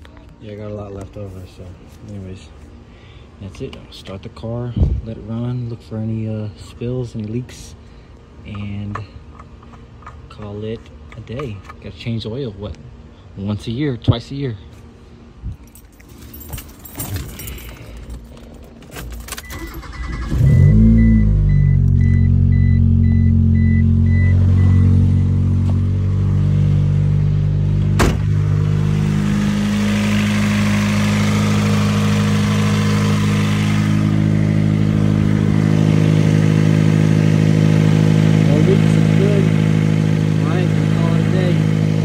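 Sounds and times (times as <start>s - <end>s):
keys rattling: 15.6s - 20.0s
car engine starting and idling: 16.0s - 42.0s.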